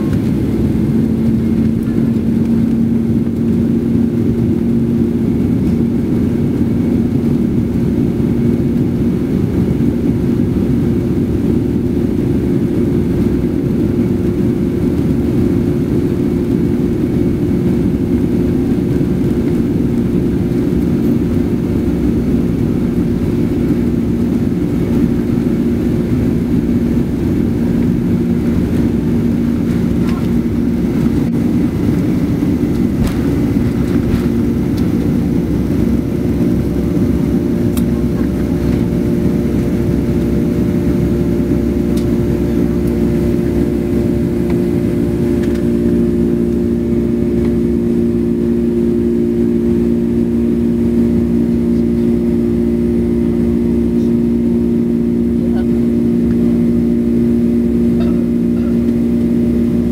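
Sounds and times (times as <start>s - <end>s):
jet engines rumbling in cabin: 0.0s - 59.9s.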